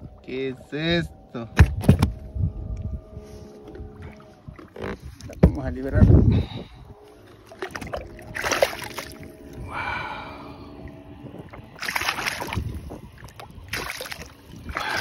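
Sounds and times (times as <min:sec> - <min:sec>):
water splashing: 0:07.2 - 0:09.6, 0:11.4 - 0:15.0.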